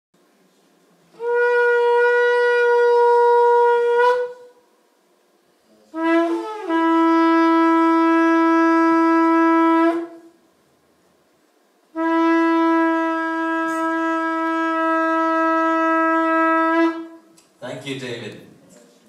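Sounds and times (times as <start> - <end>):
ram's horn blasts: 1.1 - 4.6, 5.9 - 10.3, 11.9 - 17.4.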